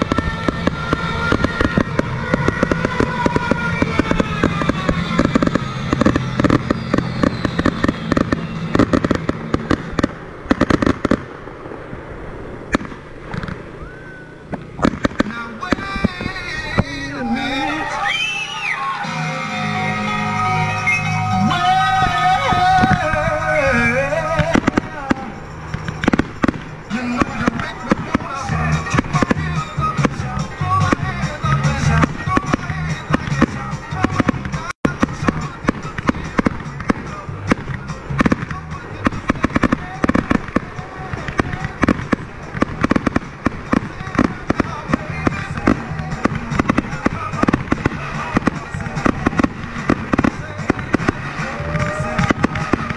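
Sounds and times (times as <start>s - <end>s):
fireworks shells bursting: 0.0s - 18.8s, 20.7s - 52.9s
music with sliding melody: 18.8s - 38.9s.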